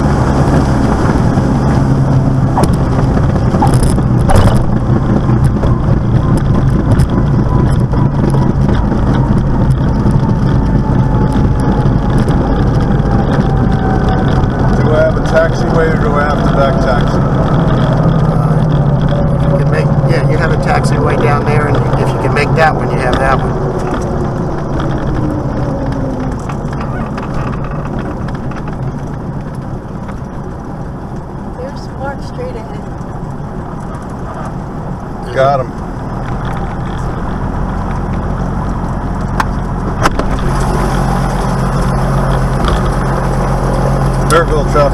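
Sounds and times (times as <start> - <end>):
rushing wind: 0.0 - 44.9
wheels rolling on runway: 0.0 - 44.9.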